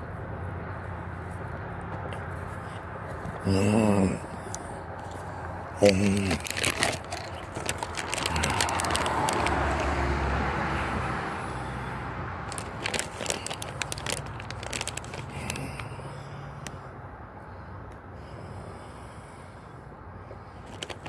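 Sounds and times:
vehicle passing: 0.0 - 21.0
sharp clicks and crackles: 4.5 - 10.0, 12.5 - 15.9, 20.6 - 21.0.

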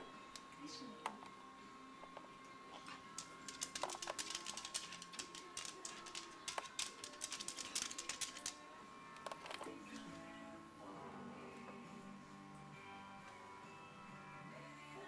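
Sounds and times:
dog claws clicking on vinyl floor: 3.1 - 8.6.

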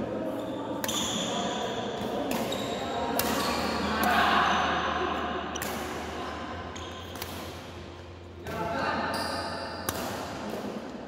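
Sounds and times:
racket smacking shuttlecock: 2.0 - 4.4, 5.5 - 6.2, 6.8 - 8.0, 9.8 - 10.9.

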